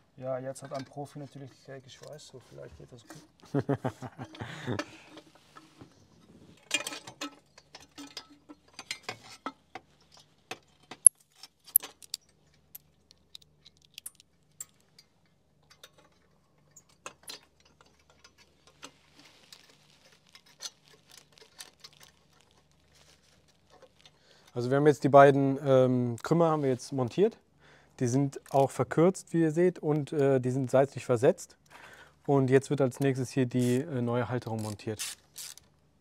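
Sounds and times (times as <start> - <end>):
metallic clicks of pipes and tools: 0.5 - 2.2, 6.6 - 24.6.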